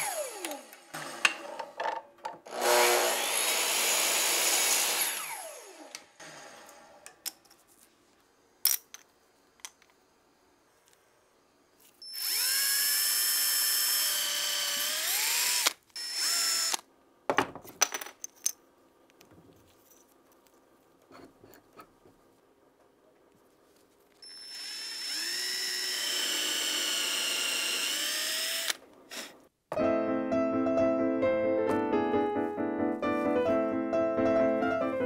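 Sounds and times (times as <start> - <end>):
power tool whine: 0.0 - 1.5, 2.5 - 6.9, 12.0 - 16.8, 24.2 - 28.8
electric miter saw cutting wood: 0.0 - 1.8, 2.4 - 7.1.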